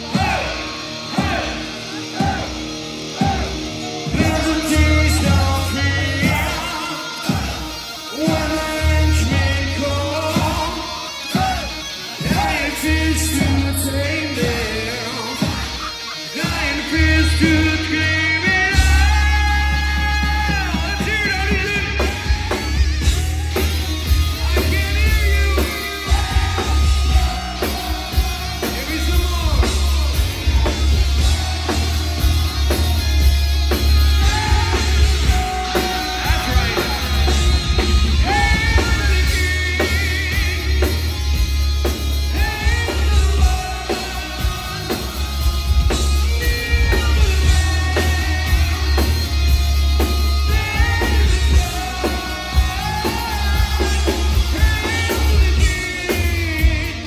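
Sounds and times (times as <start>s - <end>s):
low bass: 0.0s - 6.8s, 8.2s - 10.9s, 12.2s - 15.1s, 16.6s - 57.0s
drum kit: 0.0s - 57.0s
electric guitars: 0.0s - 57.0s
man singing: 3.2s - 57.0s.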